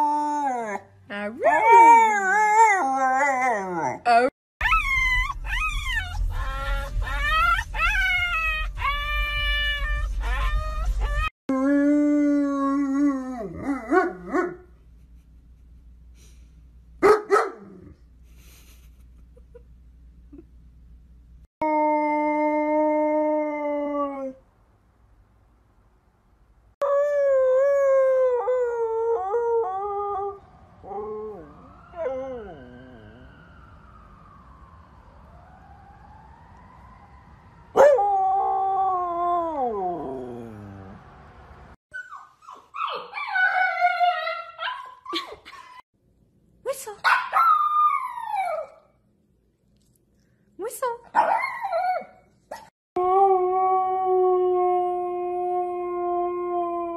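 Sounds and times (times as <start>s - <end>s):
dog barking: 17.0s - 17.7s, 47.0s - 47.6s.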